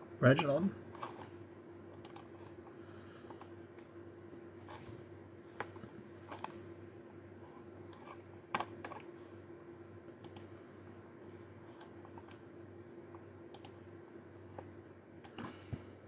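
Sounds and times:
faint low hum: 0:00.0 - 0:16.0.

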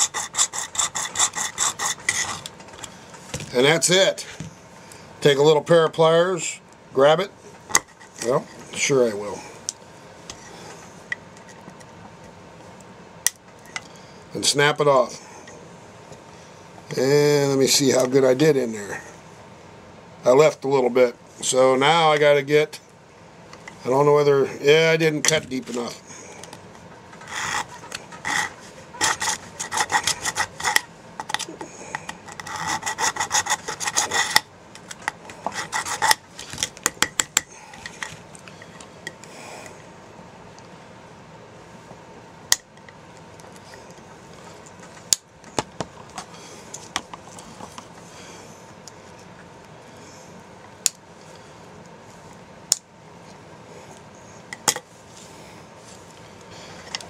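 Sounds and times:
razor saw rasping through plastic: 0:00.0 - 0:02.5, 0:27.2 - 0:30.9, 0:32.2 - 0:34.5, 0:35.3 - 0:36.2.

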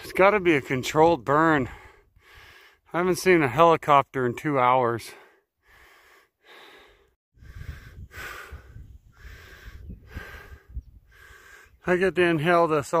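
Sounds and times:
person breathing heavily: 0:01.6 - 0:02.9, 0:05.1 - 0:11.8.

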